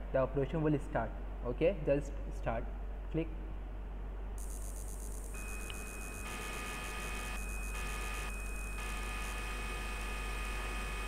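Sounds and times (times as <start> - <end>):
low electrical mains hum: 0.0 - 11.0
faint high-pitched whine: 4.4 - 11.0.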